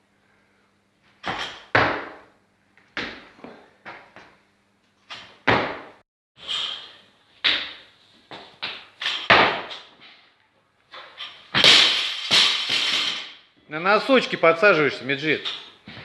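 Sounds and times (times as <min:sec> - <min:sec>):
feet landing on platform: 0:05.2 - 0:06.0.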